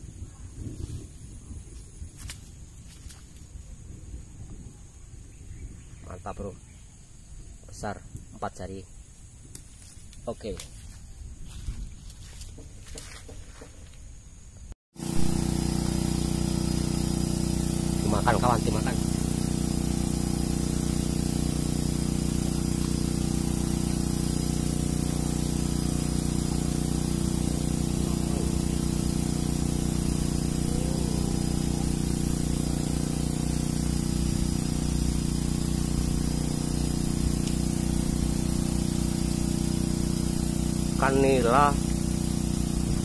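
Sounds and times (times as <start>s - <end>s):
motor humming: 15.0s - 43.0s.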